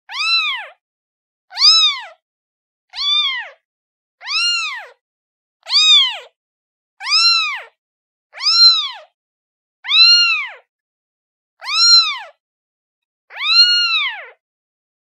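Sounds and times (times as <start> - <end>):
kitten meowing: 0.1 - 0.8, 1.5 - 2.2, 2.9 - 3.6, 4.2 - 5.0, 5.6 - 6.3, 7.0 - 7.8, 8.4 - 9.2, 9.8 - 10.7, 11.6 - 12.4, 13.3 - 14.4.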